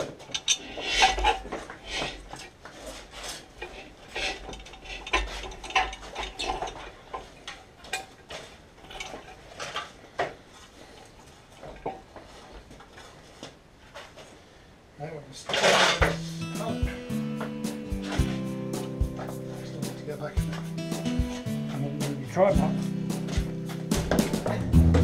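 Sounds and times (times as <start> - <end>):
metal tools clinking: 0.0 - 2.2, 3.6 - 10.0
sharp knocks: 23.2 - 25.0.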